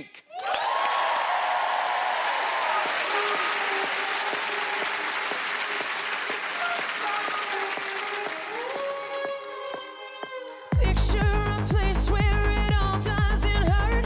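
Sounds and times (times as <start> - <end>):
audience applauding and cheering: 0.3 - 10.7.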